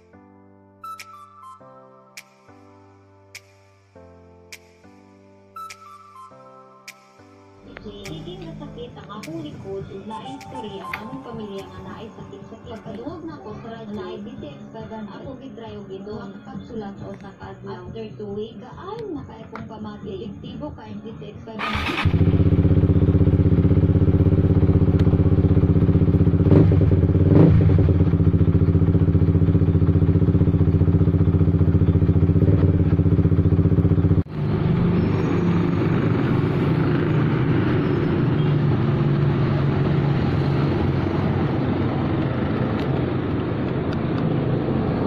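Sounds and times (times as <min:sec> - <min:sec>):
motorcycle engine idling: 0:21.6 - 0:34.2.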